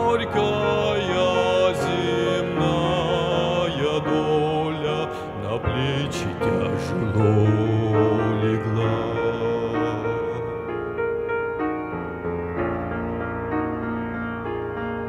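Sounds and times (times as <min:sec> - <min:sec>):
man singing a hymn: 0:00.0 - 0:10.9.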